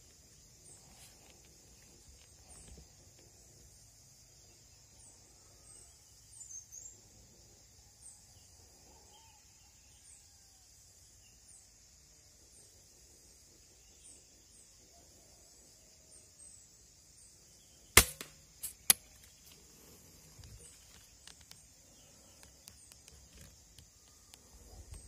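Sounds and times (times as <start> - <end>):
high insect drone: 0.0 - 25.0.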